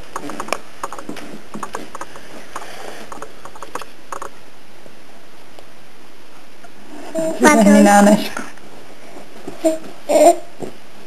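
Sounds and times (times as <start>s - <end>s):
small clicks: 0.1s - 4.4s.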